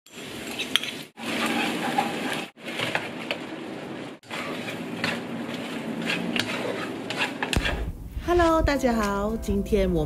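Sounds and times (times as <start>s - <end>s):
spatula scraping a pan: 0.1s - 3.1s, 4.2s - 7.9s
oil sizzling in a wok: 0.1s - 8.2s.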